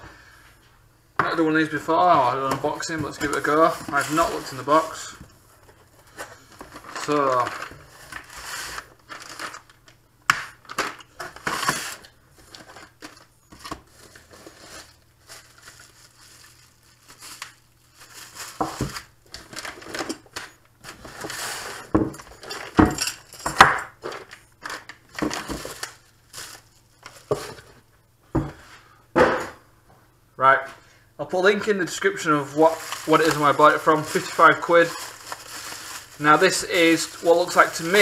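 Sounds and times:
plastic bags and bubble wrap crinkling: 2.2s - 9.9s, 10.6s - 23.0s, 24.0s - 27.8s, 31.6s - 38.0s
parts knocking on wooden workbench: 29.2s - 29.6s.

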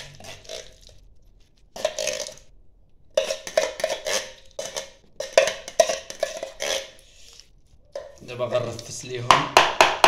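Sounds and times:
plastic basins clattering on tiles: 3.2s - 7.0s.

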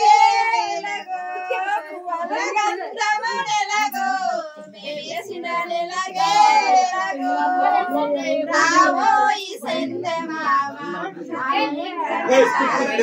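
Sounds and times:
voices singing a ceremonial song: 0.0s - 13.0s.

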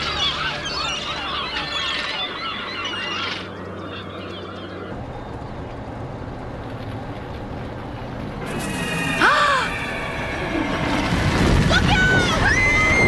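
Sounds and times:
gulls squawking: 0.0s - 5.0s.

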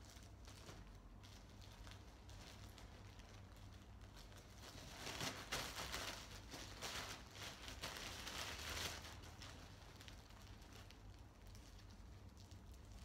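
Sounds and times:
plastic garbage bag rustling: 0.0s - 13.0s.

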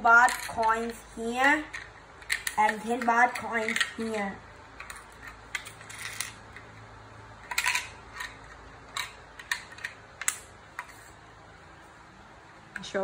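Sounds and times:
coins and plastic clicking: 0.1s - 6.8s, 7.4s - 11.0s.

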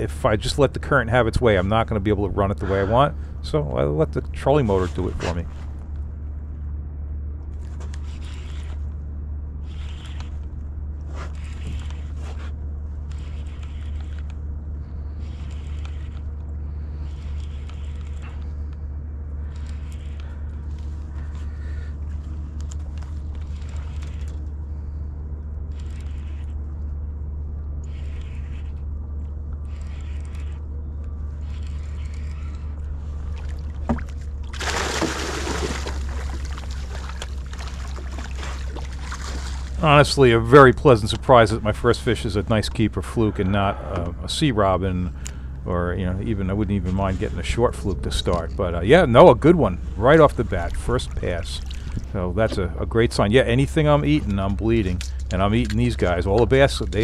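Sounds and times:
steady low hum: 0.0s - 57.0s
water swishing: 33.0s - 57.0s
fish splashing: 33.1s - 43.4s, 50.0s - 52.4s.

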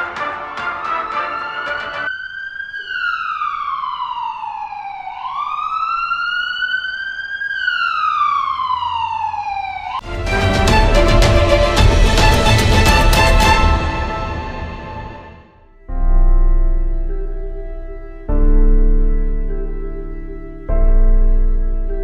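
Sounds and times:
music: 0.0s - 2.1s, 10.0s - 22.0s
ambulance siren wailing: 0.0s - 15.5s.

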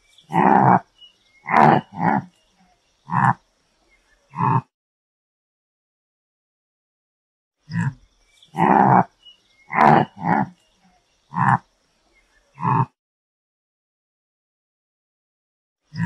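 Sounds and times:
antelope calling: 0.2s - 3.4s, 4.3s - 4.7s, 7.7s - 11.7s, 12.5s - 12.9s.

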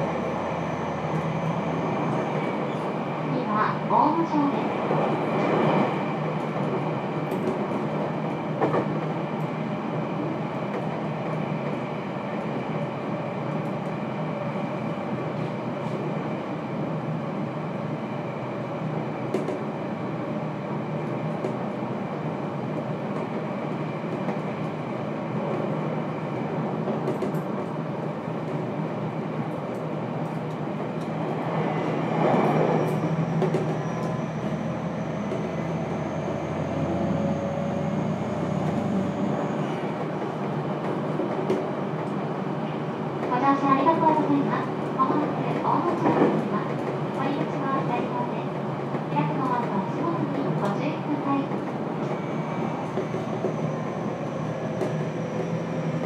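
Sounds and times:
train wheels and motors rumbling: 0.0s - 56.0s.

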